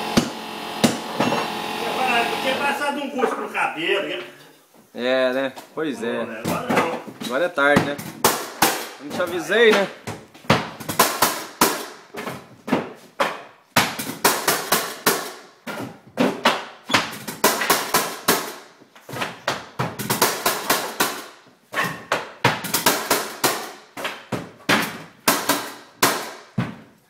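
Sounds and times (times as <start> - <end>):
mallet striking flooring nailer: 0.0 - 2.6, 10.8 - 12.0, 13.8 - 15.4, 16.2 - 21.3, 22.1 - 26.6.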